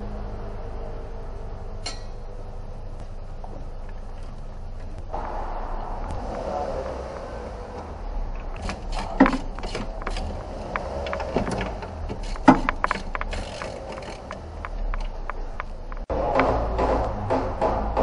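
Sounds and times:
steady low hum: 0:00.0 - 0:18.0
metal tools clinking: 0:01.8 - 0:02.2
sharp knocks: 0:05.1 - 0:18.0.

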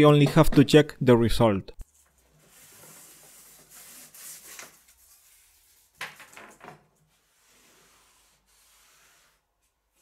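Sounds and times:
hand rubbing wooden board: 0:07.1 - 0:09.6.

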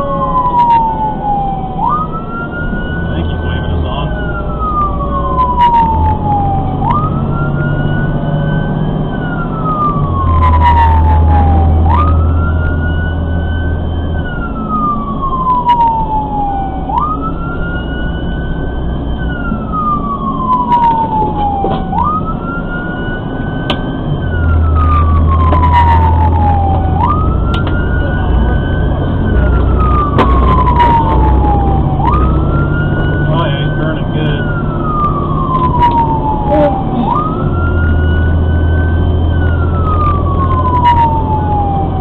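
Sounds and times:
fire engine siren wailing: 0:00.0 - 0:42.0
truck engine rumbling: 0:00.0 - 0:42.0.

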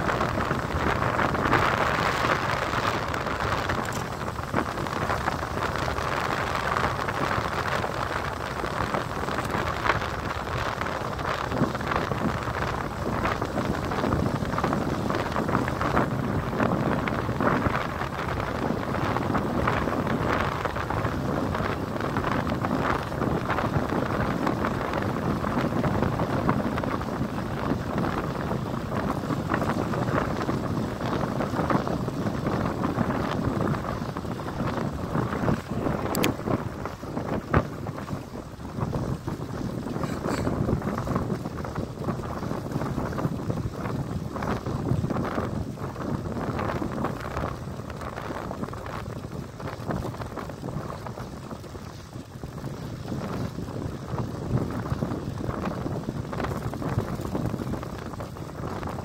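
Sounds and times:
tyres humming on asphalt: 0:00.0 - 0:59.0
wind buffeting microphone: 0:00.0 - 0:59.0
small rattling clicks: 0:03.8 - 0:04.2.

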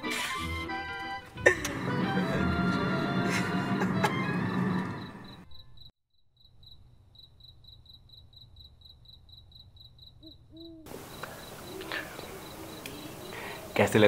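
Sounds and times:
crickets chirping: 0:03.3 - 0:14.0
low hoots: 0:10.2 - 0:13.8.

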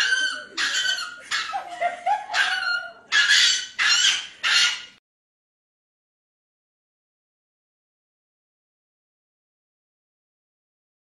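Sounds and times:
small dog yelping: 0:00.0 - 0:01.7, 0:02.3 - 0:05.0.

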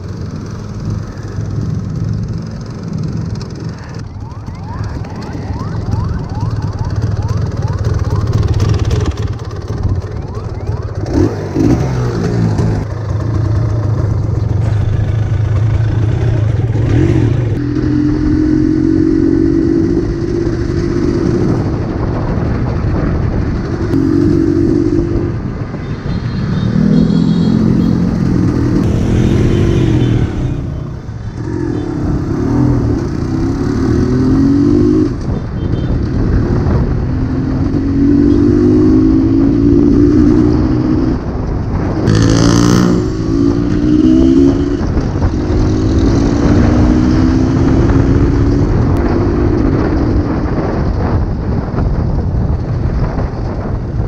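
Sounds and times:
motorcycle engine accelerating: 0:00.0 - 0:53.9.

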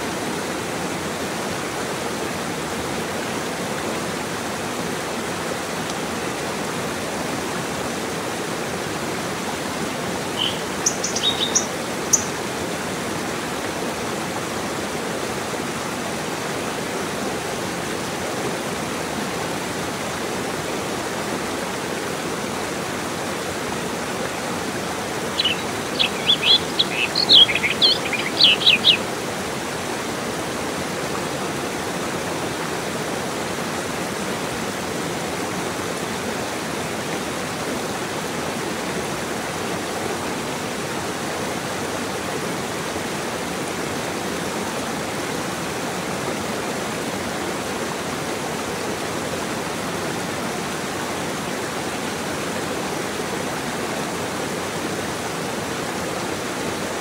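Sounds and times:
stream rushing over rocks: 0:00.0 - 0:57.0
bird singing sharp high notes: 0:10.4 - 0:12.3, 0:25.4 - 0:29.0.

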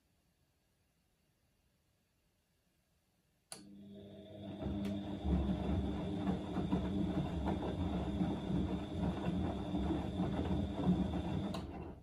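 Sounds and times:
washing machine motor hum: 0:03.6 - 0:12.0
laundry sloshing in drum: 0:05.0 - 0:11.5.

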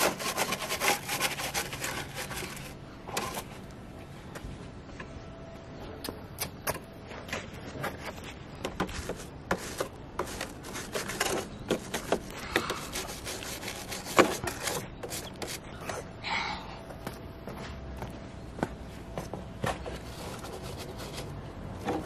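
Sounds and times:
brush scrubbing plastic toy: 0:00.0 - 0:02.8, 0:08.8 - 0:15.6.

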